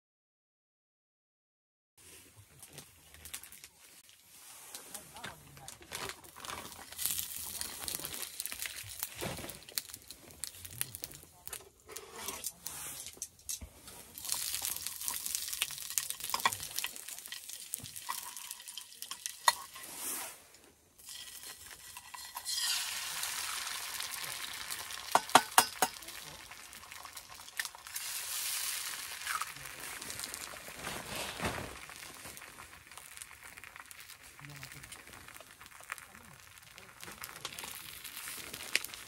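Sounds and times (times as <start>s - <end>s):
food sizzling in a pan: 6.2s - 13.1s, 13.7s - 39.0s
utensils clicking and scraping: 11.0s - 15.2s, 15.9s - 20.1s, 21.1s - 22.9s.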